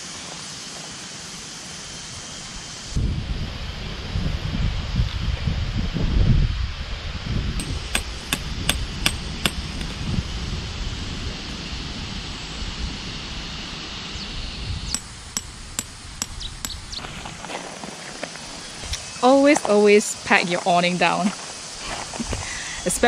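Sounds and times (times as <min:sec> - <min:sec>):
wind rumble on microphone: 0:02.8 - 0:17.4
tent peg hammered into gravel: 0:07.6 - 0:10.0.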